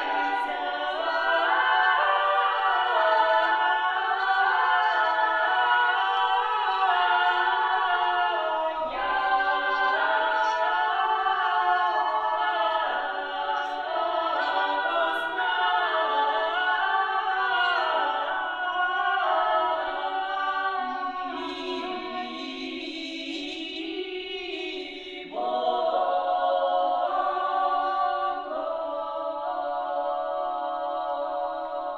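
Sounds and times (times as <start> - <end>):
women singing a cappella harmony: 0.0 - 31.9.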